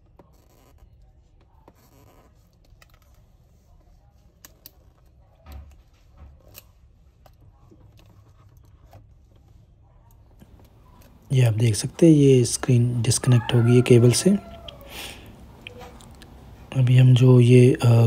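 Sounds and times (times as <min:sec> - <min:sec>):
small clicks and scratching: 0:00.0 - 0:11.2.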